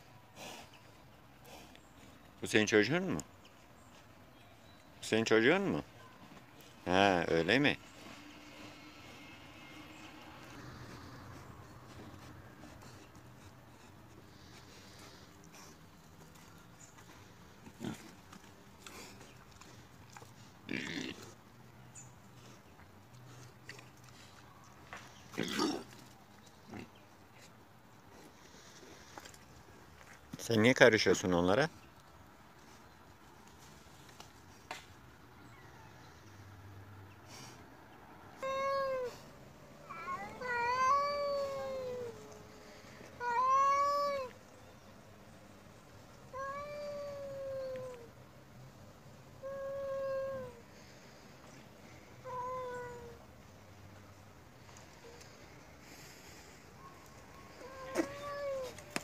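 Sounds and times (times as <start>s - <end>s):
cat yowling: 38.4s - 39.2s, 39.8s - 42.4s, 43.2s - 44.4s, 46.3s - 48.1s, 49.4s - 50.6s, 52.2s - 53.2s, 57.5s - 58.8s.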